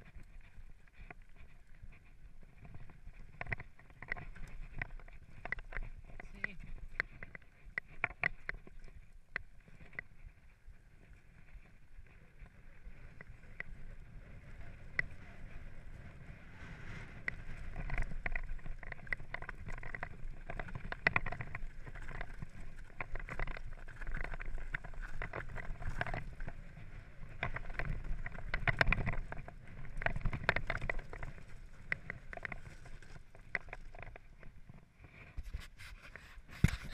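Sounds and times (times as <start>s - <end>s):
mountain bike rattling and knocking: 0.0s - 10.4s, 17.2s - 34.8s
tyres rolling on loose stones: 0.0s - 16.1s, 17.1s - 35.6s.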